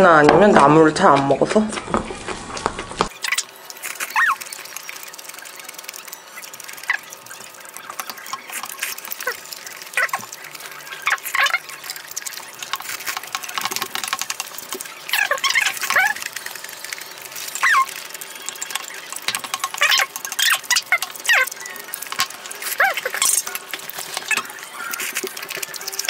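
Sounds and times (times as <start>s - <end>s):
chewing and smacking: 3.1s - 26.0s
utensils clicking against bowls: 3.1s - 26.0s
squeaky slurps: 17.4s - 18.0s, 22.6s - 26.0s.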